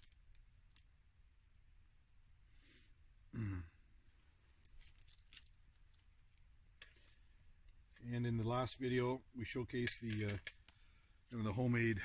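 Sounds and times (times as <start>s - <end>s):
man clearing throat: 3.3s - 3.8s
light metallic clicks and taps: 9.7s - 10.8s.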